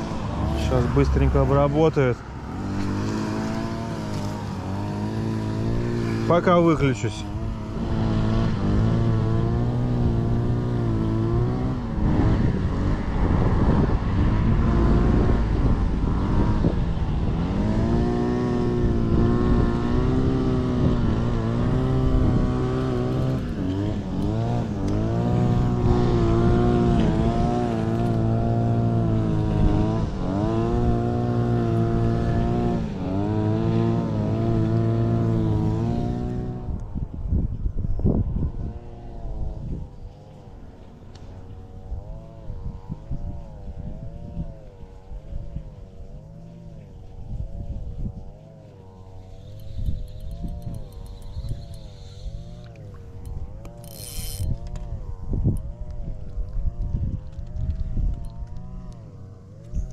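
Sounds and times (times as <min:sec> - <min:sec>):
string trimmers cutting grass: 0:00.1 - 0:13.9, 0:17.3 - 0:36.7, 0:49.2 - 0:55.1, 0:56.6 - 0:59.9.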